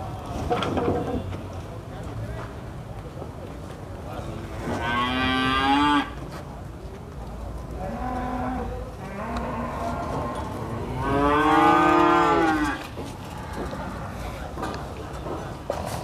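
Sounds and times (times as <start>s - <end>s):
cattle mooing: 8.2s - 12.8s.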